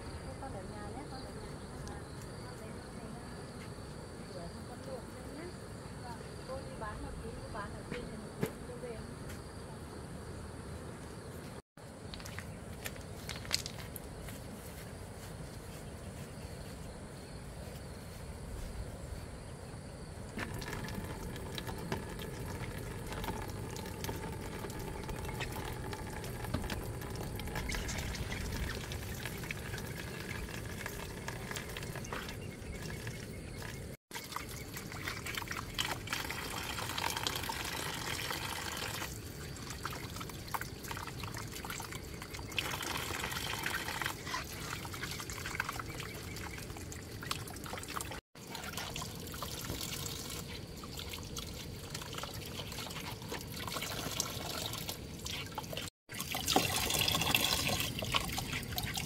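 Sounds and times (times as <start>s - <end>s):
water pouring and trickling: 20.3s - 59.0s.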